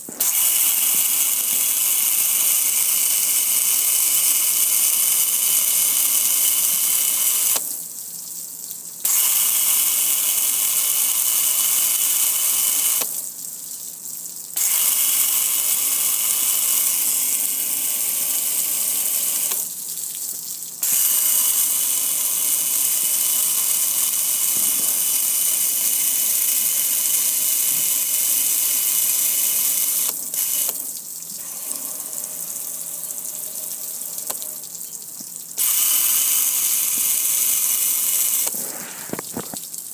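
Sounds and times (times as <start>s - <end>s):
water spray hissing on metal: 20.8s - 34.7s, 35.6s - 39.7s.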